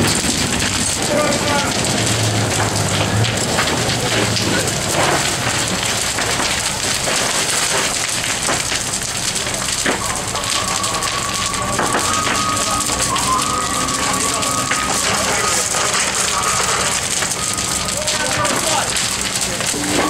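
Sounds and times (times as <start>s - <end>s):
fire crackling and popping: 0.0s - 20.0s
steady high tone: 10.0s - 18.0s.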